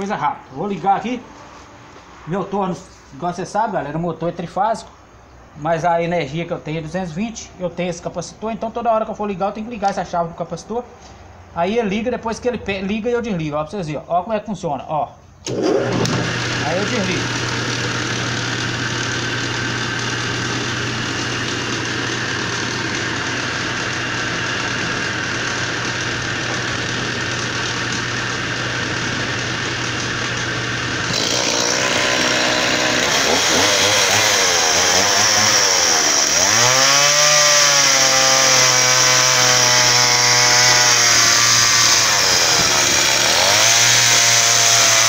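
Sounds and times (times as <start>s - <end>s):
chainsaw revving: 15.4s - 45.0s
lathe motor running: 15.5s - 45.0s.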